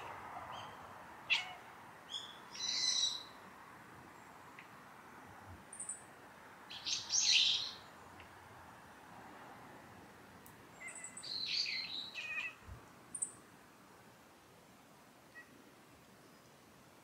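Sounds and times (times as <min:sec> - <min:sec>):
high bird chirps: 0:10.8 - 0:12.5.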